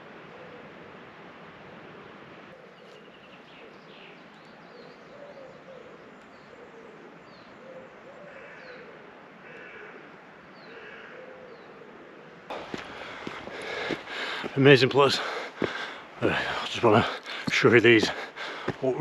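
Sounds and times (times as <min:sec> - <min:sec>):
low bird call: 0:02.5 - 0:19.0
small birds chirping: 0:12.5 - 0:19.0.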